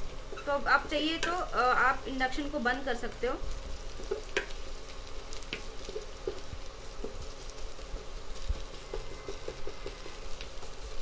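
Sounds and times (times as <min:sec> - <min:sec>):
spices sizzling in oil: 0:00.0 - 0:11.0
wooden spatula scraping and tapping: 0:04.0 - 0:04.6, 0:05.4 - 0:11.0.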